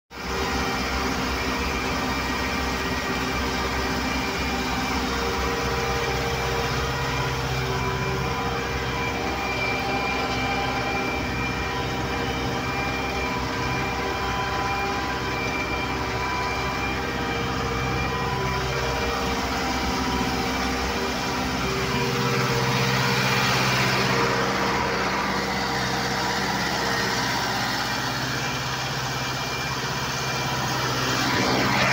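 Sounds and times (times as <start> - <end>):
tractor diesel engine under load: 0.1 - 31.9.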